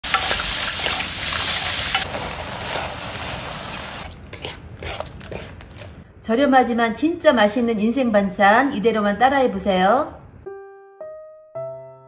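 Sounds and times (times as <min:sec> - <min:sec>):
mushrooms sizzling in a frying pan: 0:00.0 - 0:04.0.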